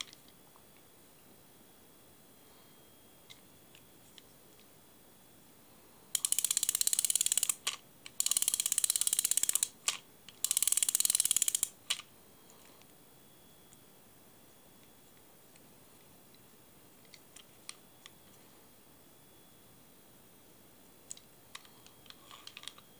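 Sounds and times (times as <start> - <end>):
fishing reel ratchet clicking: 6.2 - 9.7, 10.4 - 11.7.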